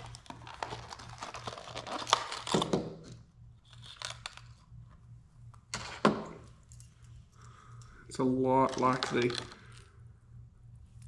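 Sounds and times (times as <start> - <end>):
packaging crinkling and crackling: 0.0 - 4.7, 8.6 - 9.9.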